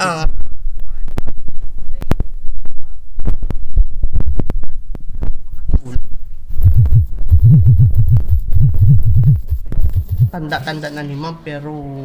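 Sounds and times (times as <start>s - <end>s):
distorted low thumping: 0.3s - 10.4s
rhythmic low pulses: 0.6s - 10.6s.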